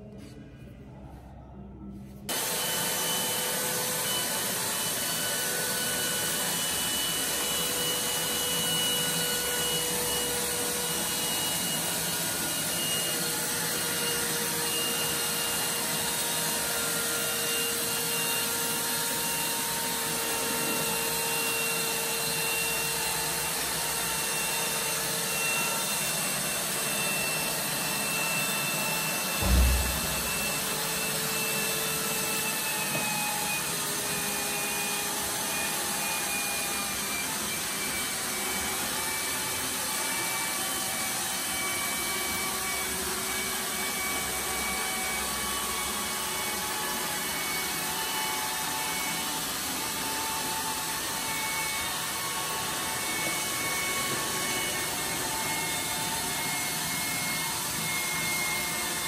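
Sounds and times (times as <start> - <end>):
robot vacuum fan whine: 2.3 - 59.0
low thump: 29.4 - 30.8.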